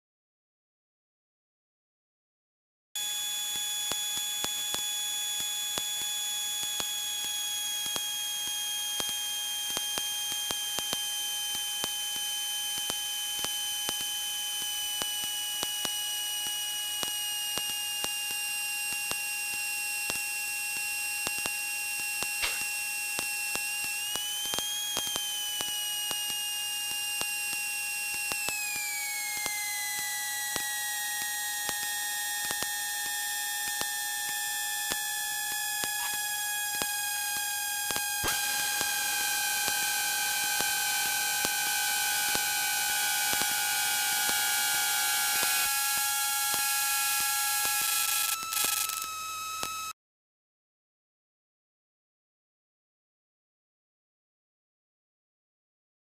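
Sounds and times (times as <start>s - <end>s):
high-pitched aircraft whine: 22.3s - 22.8s.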